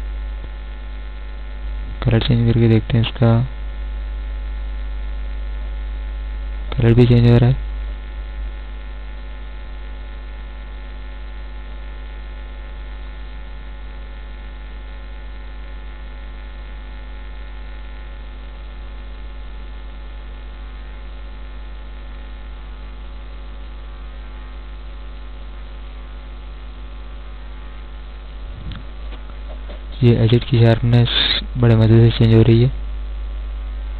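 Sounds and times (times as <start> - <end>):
electrical mains hum: 0.0 - 33.9.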